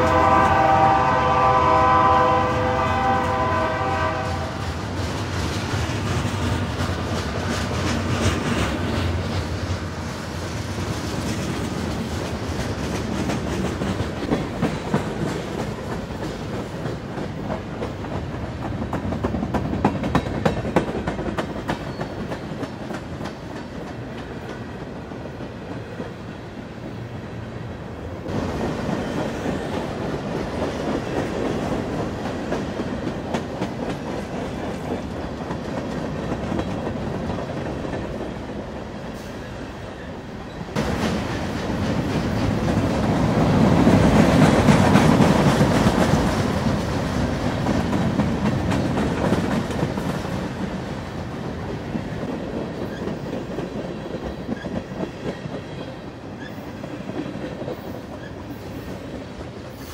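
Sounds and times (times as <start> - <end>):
locomotive horn: 0.0 - 4.7
train wheels rumbling on rails: 0.0 - 59.9.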